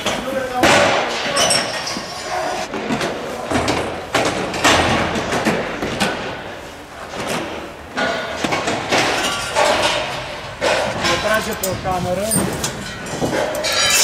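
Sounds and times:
metal clanks and thumps: 0:07.1 - 0:14.0.

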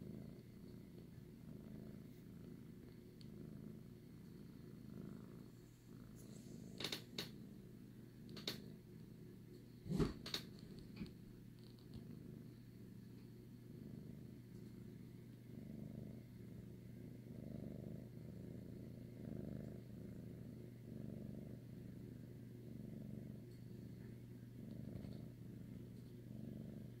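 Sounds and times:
cat purring: 0:00.0 - 0:27.0.

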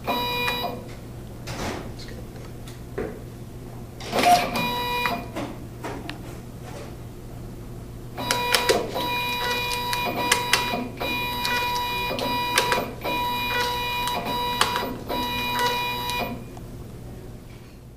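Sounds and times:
label printer whining with clicks: 0:00.0 - 0:01.0, 0:04.0 - 0:05.5, 0:08.2 - 0:16.4.

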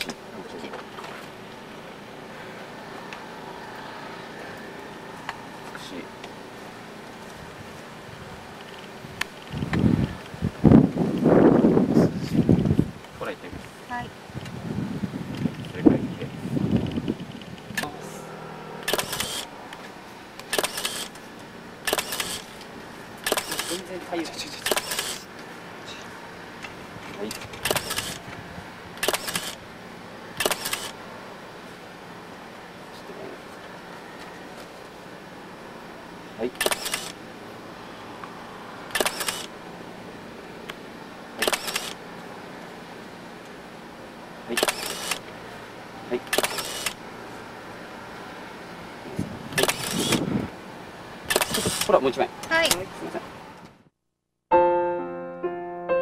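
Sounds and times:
camera shutter firing: 0:18.8 - 0:19.5, 0:20.5 - 0:21.2, 0:21.8 - 0:22.5, 0:23.2 - 0:23.8, 0:24.6 - 0:25.2, 0:27.6 - 0:28.2, 0:29.0 - 0:29.6, 0:30.4 - 0:31.0, 0:36.6 - 0:37.2, 0:38.9 - 0:39.5, 0:41.4 - 0:42.0, 0:44.6 - 0:45.2, 0:46.3 - 0:47.0, 0:49.6 - 0:50.2, 0:51.3 - 0:51.9.

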